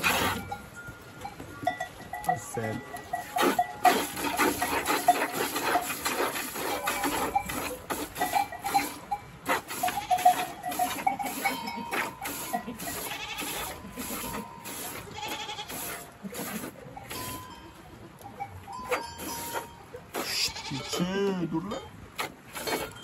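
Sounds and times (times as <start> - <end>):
goats bleating: 9.7 - 16.6, 20.2 - 21.4.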